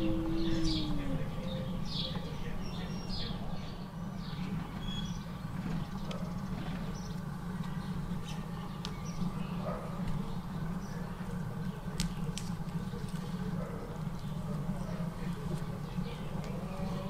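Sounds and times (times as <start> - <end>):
steady low rumble: 0.0 - 3.0
bird chirps: 0.0 - 3.4.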